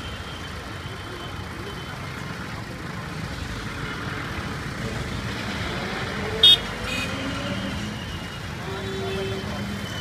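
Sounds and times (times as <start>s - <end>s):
traffic engines idling: 0.0s - 10.0s
car horn beep: 6.4s - 7.3s.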